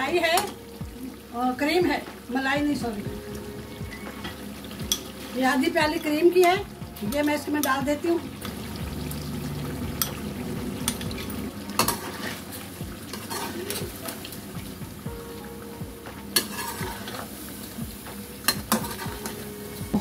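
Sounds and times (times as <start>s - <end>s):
chicken sizzling in hot oil: 0.0s - 20.0s
metal spoon scraping pan: 11.8s - 13.8s, 16.4s - 17.3s.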